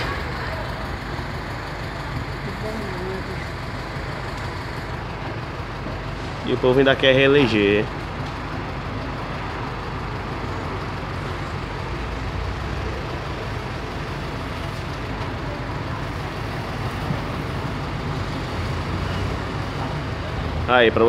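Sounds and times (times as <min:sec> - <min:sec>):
street traffic: 0:00.0 - 0:21.0
vehicle engine idling: 0:00.0 - 0:21.0.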